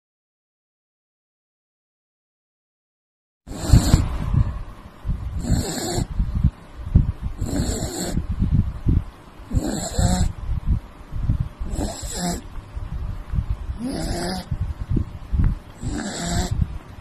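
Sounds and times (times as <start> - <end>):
puppy snoring: 3.5 - 4.1, 5.4 - 6.2, 7.4 - 8.2, 9.5 - 10.4, 11.6 - 12.5, 13.7 - 14.6, 15.8 - 16.7.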